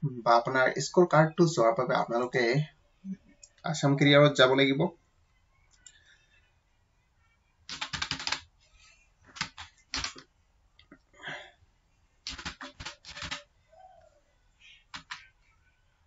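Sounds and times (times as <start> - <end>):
computer keyboard typing: 7.7 - 8.5, 9.3 - 10.2, 12.3 - 13.5, 14.8 - 15.3.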